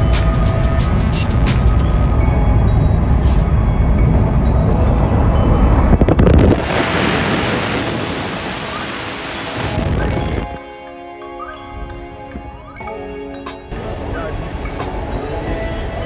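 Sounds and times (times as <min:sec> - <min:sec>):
road and wind noise inside car: 0:00.0 - 0:10.6, 0:13.7 - 0:16.0
wind hissing on microphone: 0:04.4 - 0:10.6.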